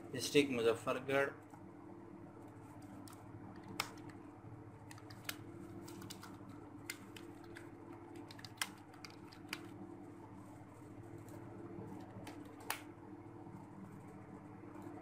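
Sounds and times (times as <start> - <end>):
steady low hum: 0.0 - 15.0
keyboard keys clicking: 4.9 - 9.7.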